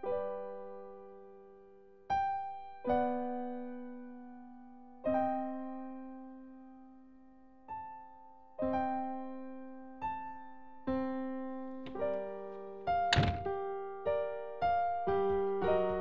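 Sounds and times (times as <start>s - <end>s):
slow solo piano: 0.0s - 16.0s.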